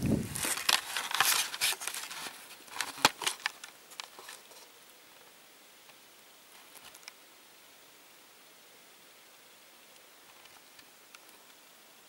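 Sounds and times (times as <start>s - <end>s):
faint steady hiss: 0.0s - 12.0s
camera handling rustling: 0.2s - 4.7s.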